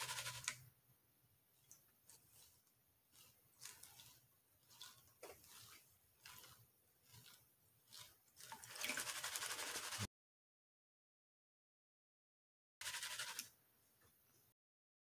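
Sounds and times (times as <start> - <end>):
water sloshing in a plastic pan: 1.5 - 10.1.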